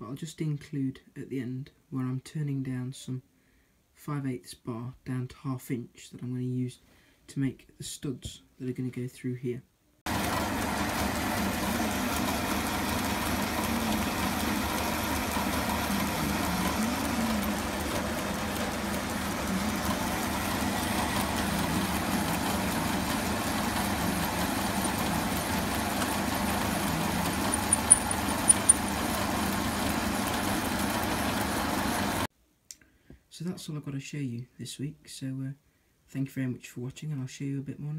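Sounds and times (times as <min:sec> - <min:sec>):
metal lathe running: 0:10.1 - 0:32.3
wavering drive hum: 0:10.1 - 0:32.3.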